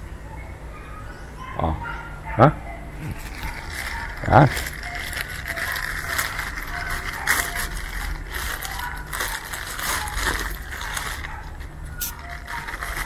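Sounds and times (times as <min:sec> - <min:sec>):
plastic bag crinkling: 0:03.0 - 0:13.0.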